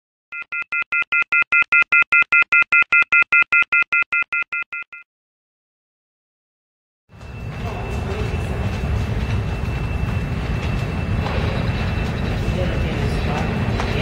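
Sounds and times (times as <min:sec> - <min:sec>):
rapid electronic beeping: 0:07.3 - 0:14.0.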